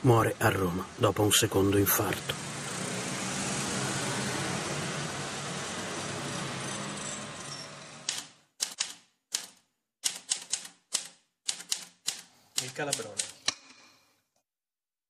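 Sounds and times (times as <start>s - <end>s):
typewriter keys clacking: 8.1s - 13.5s.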